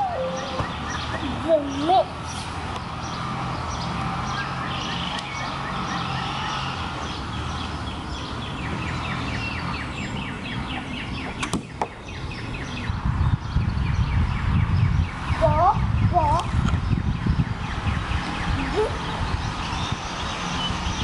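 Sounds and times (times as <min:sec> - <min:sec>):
birds chirping: 0:00.0 - 0:21.0
steady low rumble: 0:07.9 - 0:20.3.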